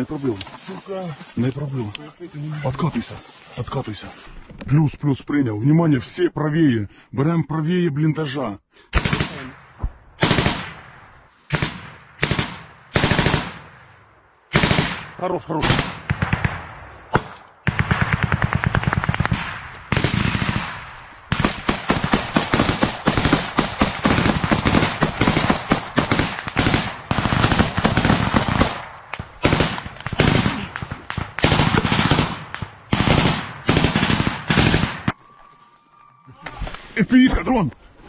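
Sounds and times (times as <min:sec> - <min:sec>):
automatic gunfire bursts: 0:09.0 - 0:09.5, 0:10.2 - 0:10.8, 0:11.5 - 0:13.6, 0:14.5 - 0:15.0, 0:17.7 - 0:28.8, 0:29.4 - 0:35.1.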